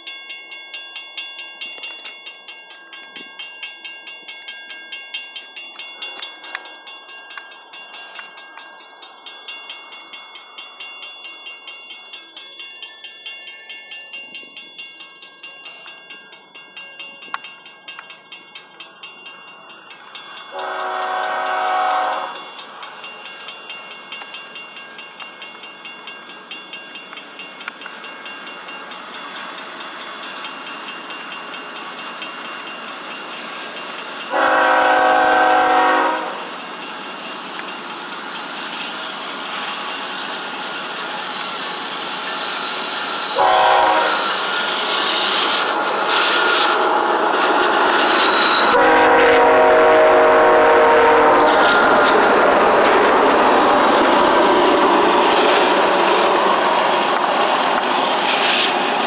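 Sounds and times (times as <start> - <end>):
crossing warning bell ringing: 0.0 - 57.7
locomotive air horn blast: 20.5 - 22.4, 34.3 - 36.4, 43.4 - 44.3, 48.7 - 51.7.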